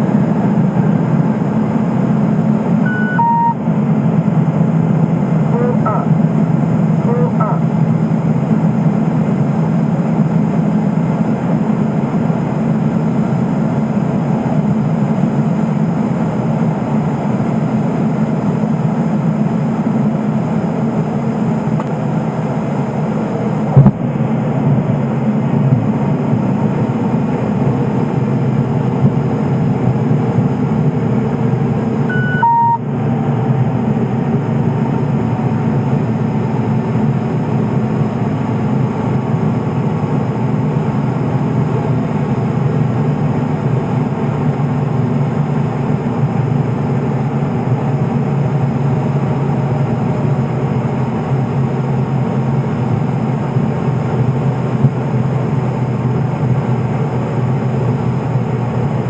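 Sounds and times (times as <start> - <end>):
turboprop engine in cabin: 0.0 - 59.0
short electronic beep: 2.8 - 3.6, 5.5 - 6.2, 7.0 - 7.7, 32.1 - 32.9.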